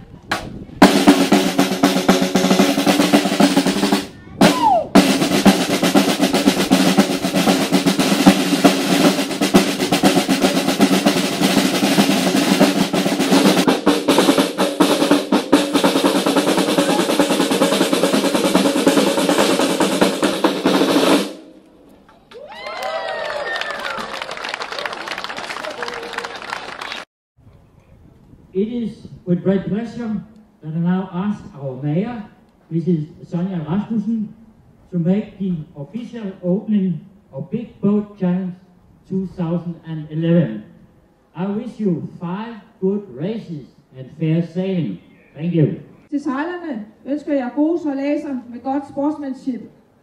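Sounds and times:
marching snare drums playing: 0.3s - 21.5s.

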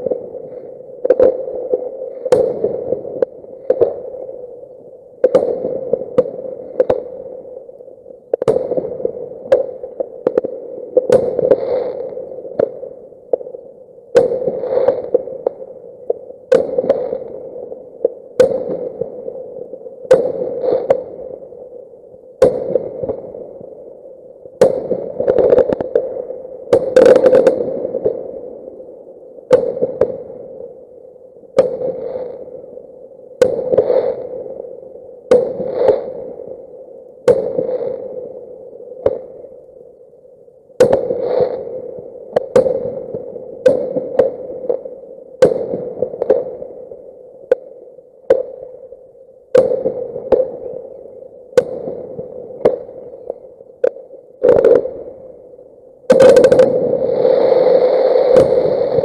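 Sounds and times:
distant fireworks bangs: 56.1s - 57.0s.

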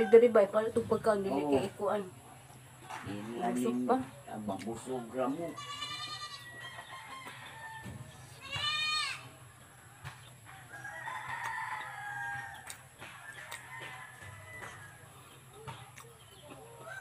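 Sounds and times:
rooster crowing: 0.0s - 0.5s, 5.4s - 15.2s, 16.7s - 17.0s.

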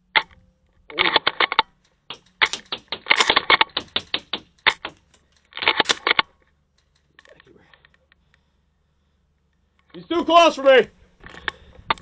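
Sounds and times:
airsoft guns firing in bursts: 2.1s - 6.2s.

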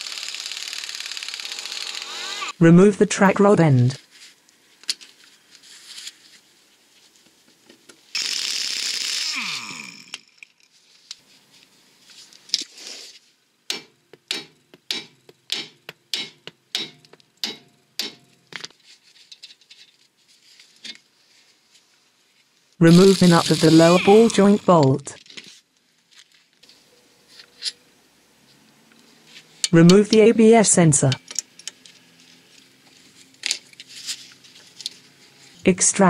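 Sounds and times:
impact wrench whirring: 0.0s - 2.6s, 8.2s - 9.8s, 22.9s - 24.7s
sharp metallic knocks: 13.7s - 18.3s.

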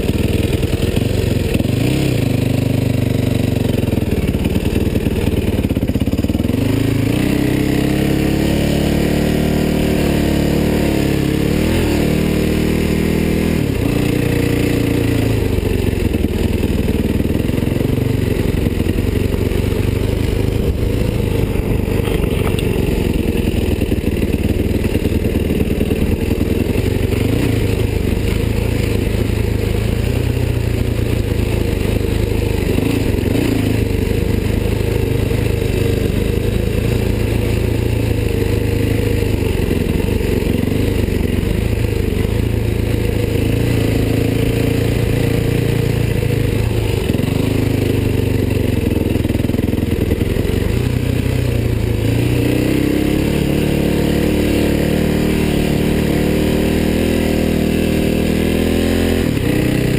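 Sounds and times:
dirt bike engine under load: 17.8s - 26.4s.

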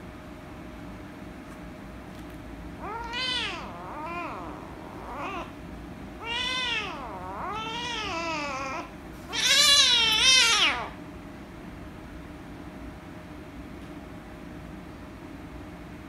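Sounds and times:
kitten meowing: 2.8s - 5.5s, 6.2s - 11.0s.

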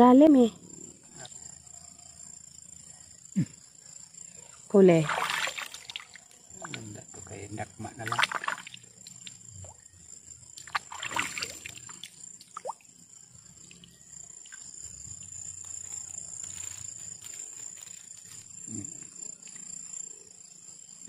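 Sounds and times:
night insects droning: 0.0s - 21.0s
water splashing from wading: 5.0s - 6.8s, 8.0s - 8.8s, 10.6s - 12.8s.

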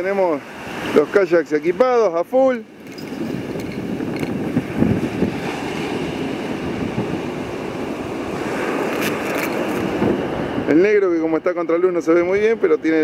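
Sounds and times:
sea surf: 0.0s - 13.0s
wind buffeting microphone: 2.6s - 11.4s.

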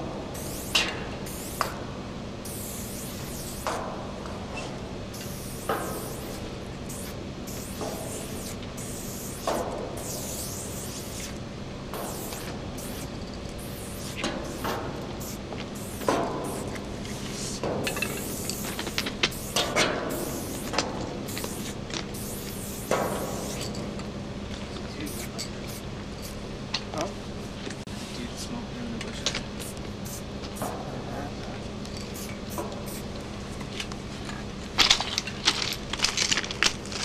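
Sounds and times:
spray paint can hissing: 0.3s - 1.8s, 2.4s - 3.8s, 5.1s - 11.4s, 12.0s - 23.7s, 29.6s - 30.2s, 32.1s - 33.1s.

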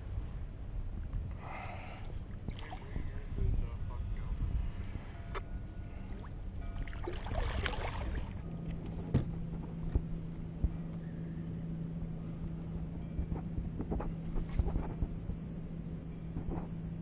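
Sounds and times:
water splashing: 2.3s - 3.3s, 6.2s - 8.4s.

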